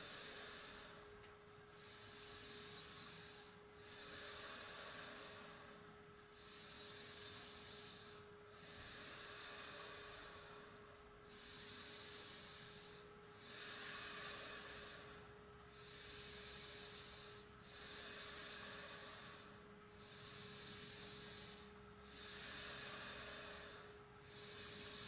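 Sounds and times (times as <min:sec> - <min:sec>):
faint steady hum: 0:00.0 - 0:25.0
soft breathing: 0:00.0 - 0:25.0.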